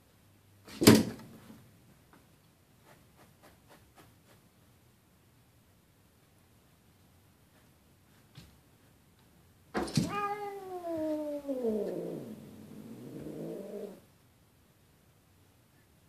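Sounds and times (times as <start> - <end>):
cat yowling: 10.0 - 14.0.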